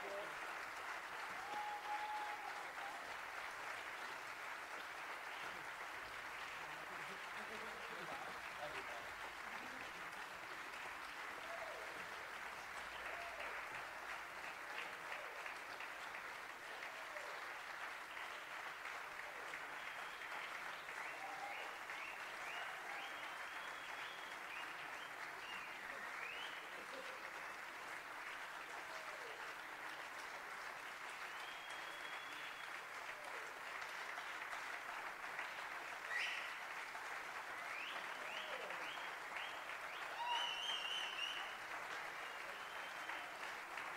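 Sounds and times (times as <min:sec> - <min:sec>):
audience applauding: 0:00.0 - 0:43.9
audience cheering: 0:01.0 - 0:04.0, 0:12.8 - 0:13.8, 0:19.4 - 0:24.8, 0:37.7 - 0:43.9.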